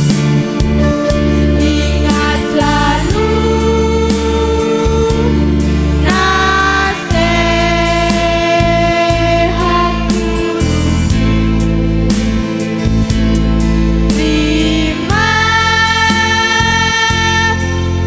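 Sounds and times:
electronic keyboard: 0:00.0 - 0:18.0
girls' choir singing: 0:06.0 - 0:10.7, 0:14.2 - 0:17.7.

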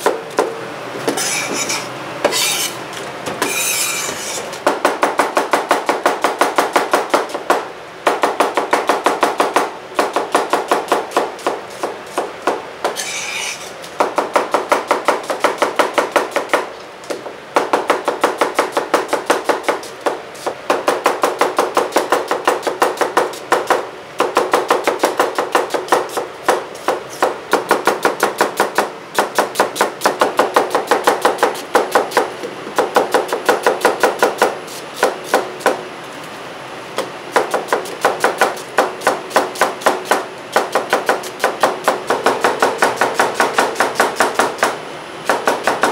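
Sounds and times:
knife chopping on wooden board: 0:08.2 - 0:35.8, 0:37.0 - 0:45.9.

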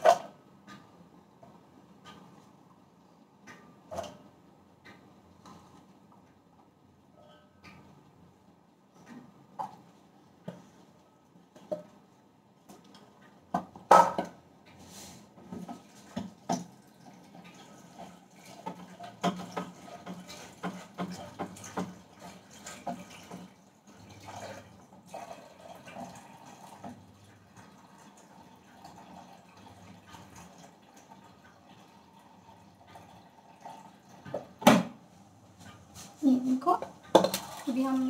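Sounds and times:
water running and splashing: 0:15.5 - 0:34.6, 0:36.3 - 0:38.0.

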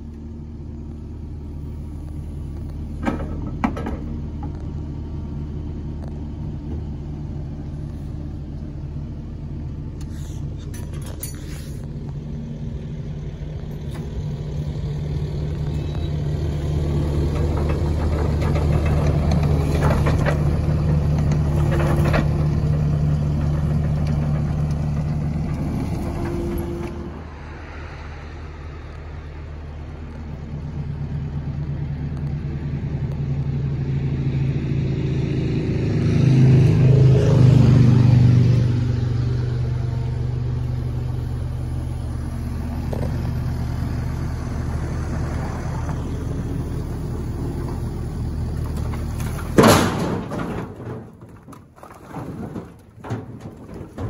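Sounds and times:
diesel engine running: 0:00.0 - 0:54.0
firewood clattering into trailer: 0:03.0 - 0:04.6, 0:47.6 - 0:54.0.

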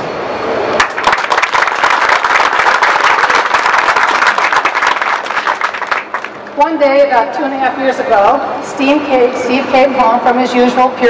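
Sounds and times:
crowd applauding: 0:00.8 - 0:06.5.

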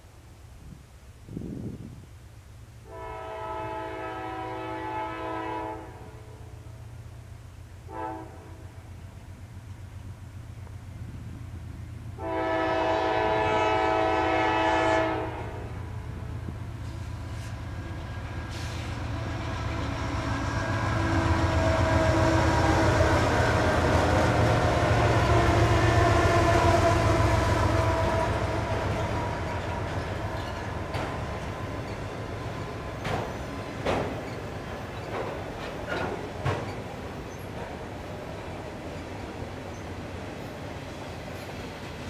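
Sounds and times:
diesel locomotive engine drone: 0:00.0 - 0:42.0
wheels clacking over rail joints: 0:26.9 - 0:42.0.

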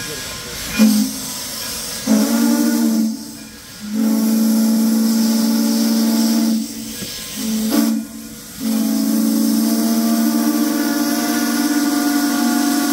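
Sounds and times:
steady hiss of steam: 0:00.0 - 0:12.9
steam locomotive whistle: 0:00.7 - 0:01.3, 0:01.9 - 0:12.9.

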